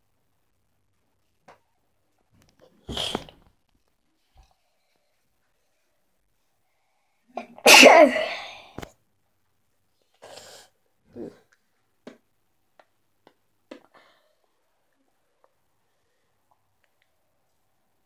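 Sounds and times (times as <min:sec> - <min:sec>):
person sneezing: 0:02.8 - 0:03.4, 0:07.4 - 0:08.8.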